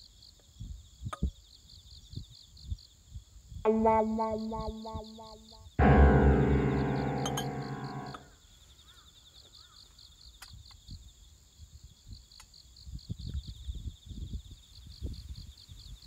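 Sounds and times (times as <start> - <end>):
background music: 3.7 - 8.2.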